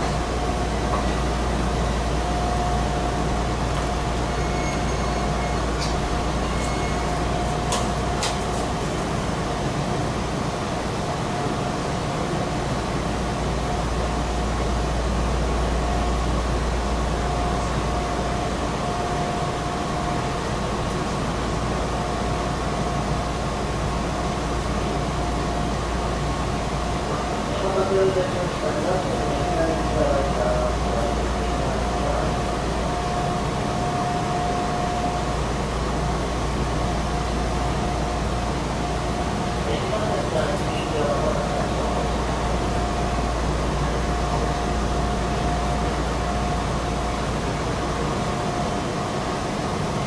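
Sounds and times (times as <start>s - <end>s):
electric train rumble: 0.0s - 50.0s.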